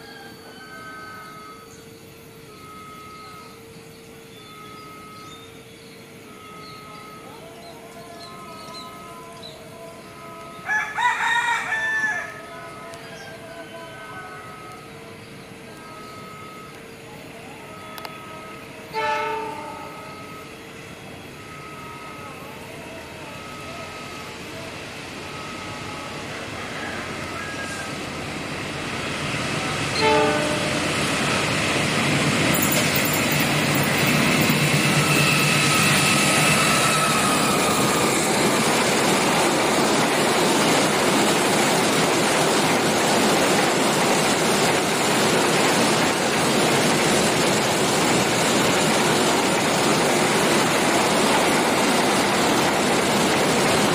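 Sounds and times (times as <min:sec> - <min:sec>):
train rumble: 0:11.7 - 0:53.9
locomotive engine: 0:12.3 - 0:53.9
wheels on rail: 0:12.7 - 0:53.9
train horn blast: 0:17.6 - 0:20.5, 0:29.9 - 0:31.2, 0:35.0 - 0:38.2.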